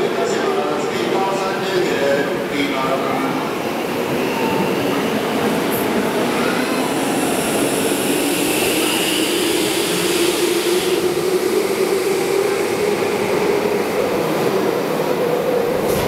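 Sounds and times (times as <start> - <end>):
subway train motor hum: 3.3 - 16.0.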